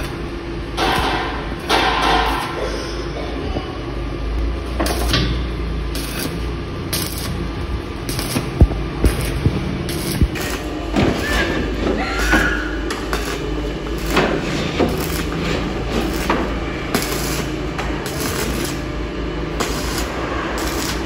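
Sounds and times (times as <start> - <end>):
welding arc crackling and hissing: 0.0 - 3.1, 4.4 - 21.0.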